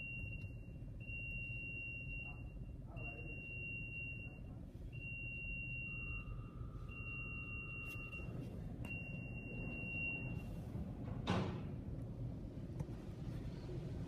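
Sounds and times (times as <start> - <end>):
car wash machinery rumble: 6.6 - 14.0.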